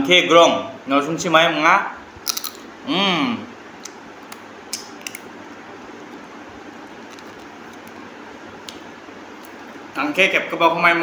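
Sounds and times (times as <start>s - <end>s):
man humming: 2.8s - 3.5s.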